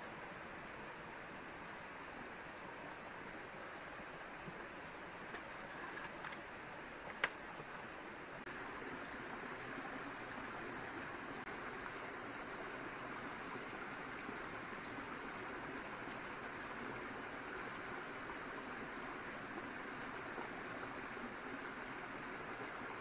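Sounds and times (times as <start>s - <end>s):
running water rushing: 0.0s - 23.0s.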